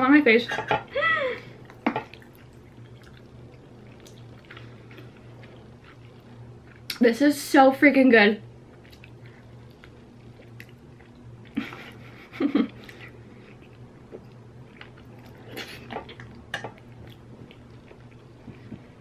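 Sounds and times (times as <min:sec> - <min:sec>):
faint low hum: 0:00.0 - 0:19.0
chewing: 0:01.6 - 0:07.0, 0:08.7 - 0:12.0, 0:12.7 - 0:19.0.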